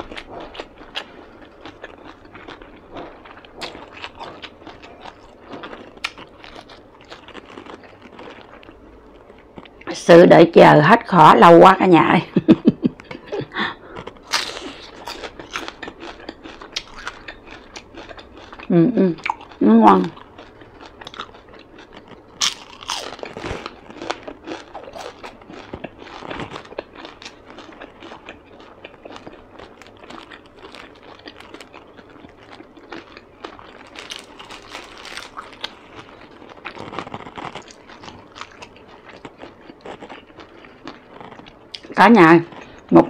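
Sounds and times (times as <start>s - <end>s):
crunching and chewing: 0.0s - 9.9s, 13.0s - 43.0s.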